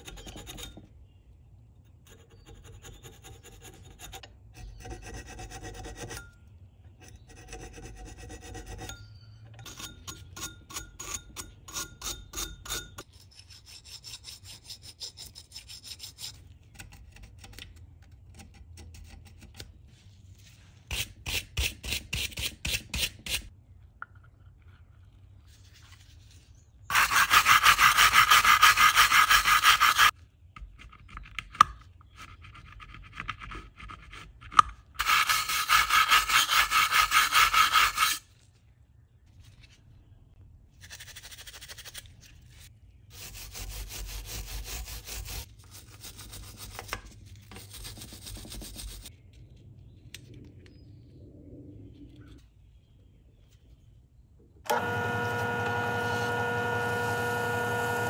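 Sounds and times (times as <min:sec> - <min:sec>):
metal parts scraped by hand: 0:07.0 - 0:16.6, 0:26.9 - 0:30.1, 0:35.0 - 0:38.4.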